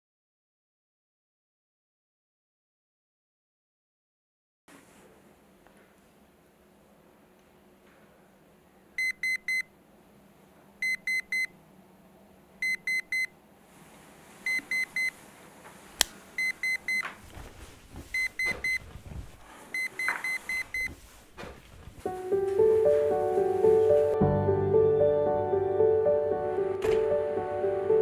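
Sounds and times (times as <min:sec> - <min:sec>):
alarm clock beeping: 0:10.8 - 0:11.5, 0:12.6 - 0:13.3, 0:19.8 - 0:20.9
person shuffling in bed: 0:13.6 - 0:16.4, 0:17.0 - 0:24.2.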